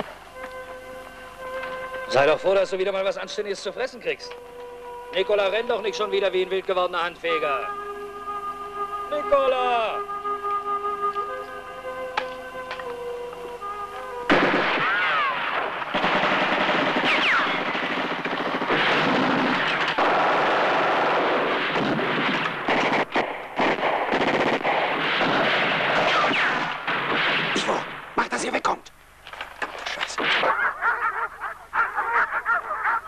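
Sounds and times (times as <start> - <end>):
held music notes: 0.0 - 14.4
machine-gun fire: 14.3 - 28.1.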